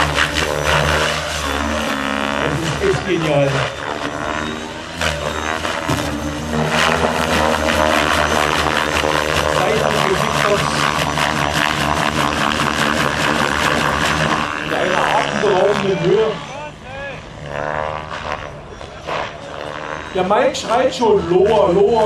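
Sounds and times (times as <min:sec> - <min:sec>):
motor and rotor whine: 0:00.0 - 0:22.0
rotor blades whooshing: 0:00.0 - 0:22.0.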